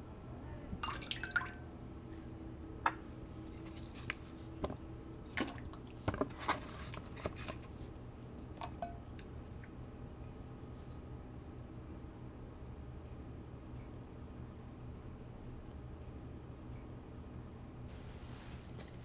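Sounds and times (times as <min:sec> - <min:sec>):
small splashes in bowl of water: 0:00.8 - 0:01.6.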